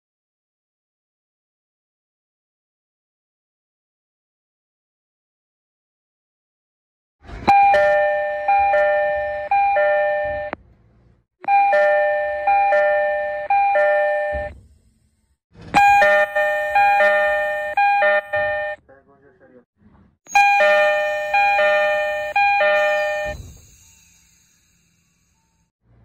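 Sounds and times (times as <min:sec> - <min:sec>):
train door chime: 0:07.4 - 0:10.6, 0:11.4 - 0:14.6, 0:15.7 - 0:18.8, 0:20.3 - 0:25.7.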